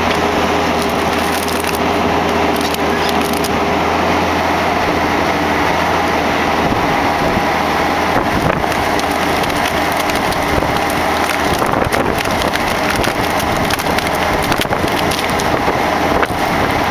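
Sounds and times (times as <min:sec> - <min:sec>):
wood cracking and splitting: 0:00.0 - 0:03.8, 0:08.2 - 0:16.9
diesel engine running: 0:00.0 - 0:16.9.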